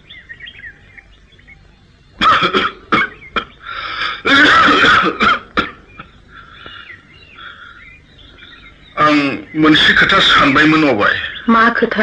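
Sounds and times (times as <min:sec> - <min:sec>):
person coughing or laughing: 0:02.2 - 0:06.2.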